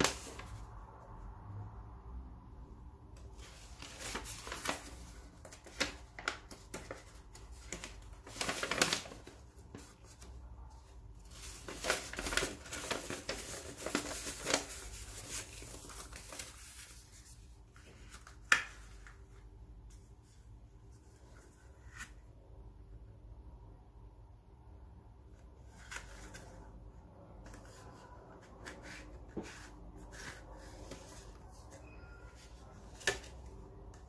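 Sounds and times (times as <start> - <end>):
paper rustling and crinkling: 0.0 - 0.7, 3.2 - 20.4, 25.6 - 34.0.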